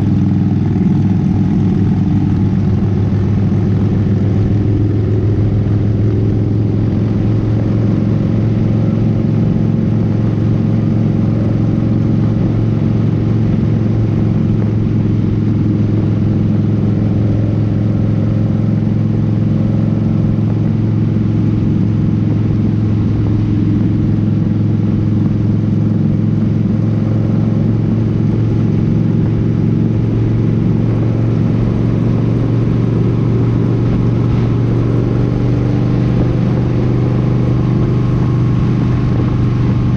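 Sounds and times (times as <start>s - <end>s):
motorcycle engine cruising: 0.0s - 39.9s
road noise: 0.0s - 39.9s
wind noise: 27.6s - 39.9s.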